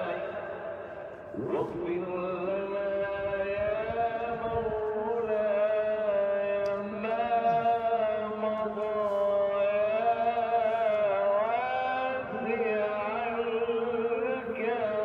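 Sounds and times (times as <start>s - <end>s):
voice chanting long held notes: 1.2s - 2.7s.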